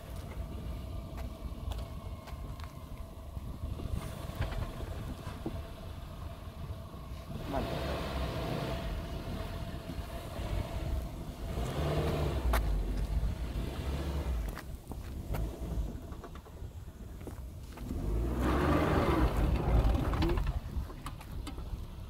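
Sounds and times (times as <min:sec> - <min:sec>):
car engine running at low speed: 0:00.0 - 0:22.0
vehicle clicks and knocks: 0:03.9 - 0:05.6, 0:14.4 - 0:18.0, 0:19.2 - 0:22.0.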